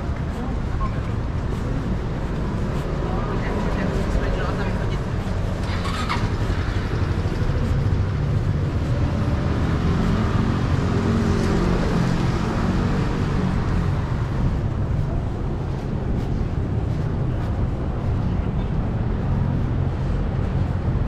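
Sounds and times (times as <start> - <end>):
low rumble of motor vehicles: 0.0 - 21.0
vehicle passing close by: 2.5 - 15.1.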